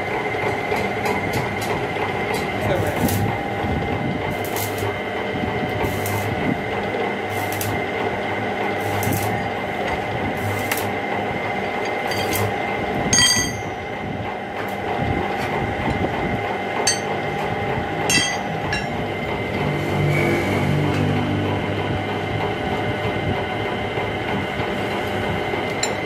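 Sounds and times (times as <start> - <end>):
metal lathe hum and whine: 0.0 - 26.0
ringing metal clinks: 13.2 - 13.8, 16.9 - 17.2, 18.1 - 19.0.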